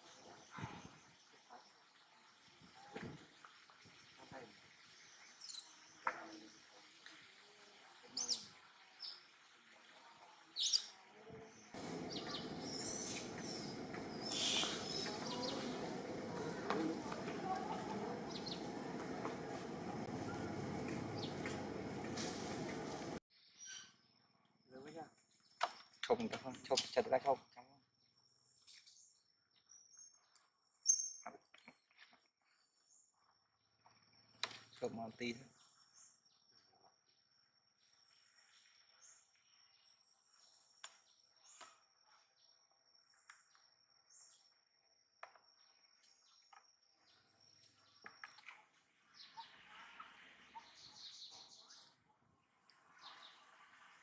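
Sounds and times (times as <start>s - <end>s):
birds chirping: 11.5s - 24.0s.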